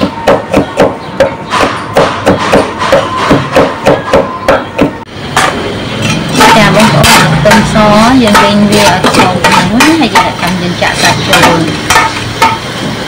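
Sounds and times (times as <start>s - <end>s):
cleaver chopping on wooden block: 0.2s - 5.0s.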